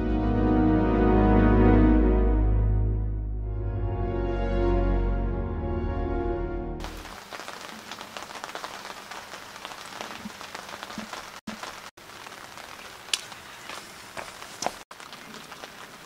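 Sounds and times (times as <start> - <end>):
light rain pattering: 6.8 - 16.0.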